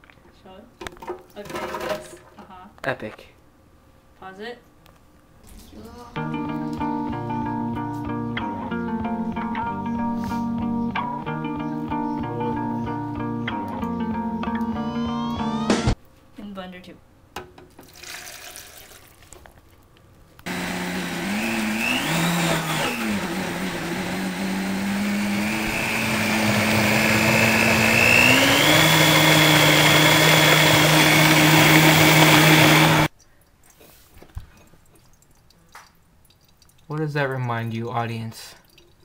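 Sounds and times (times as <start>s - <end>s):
blender motor running: 20.5s - 33.1s.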